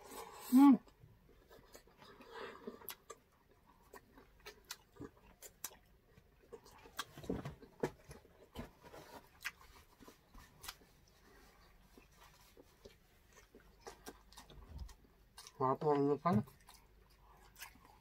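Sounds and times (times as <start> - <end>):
chewing and lip smacks: 1.3 - 7.2, 9.3 - 15.6, 16.4 - 18.0.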